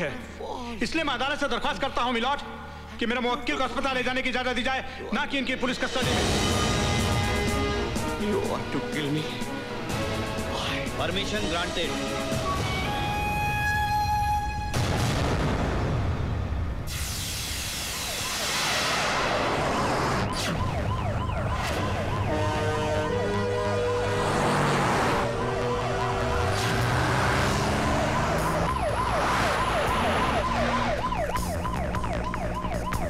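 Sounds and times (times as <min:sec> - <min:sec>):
siren wailing: 0:12.5 - 0:14.9, 0:17.6 - 0:33.0.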